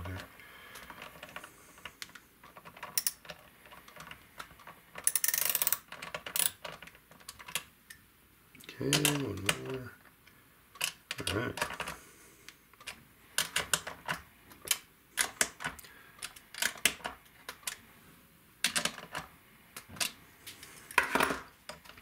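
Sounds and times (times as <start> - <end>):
wrench clicking on metal: 3.0 - 3.2, 5.0 - 6.6.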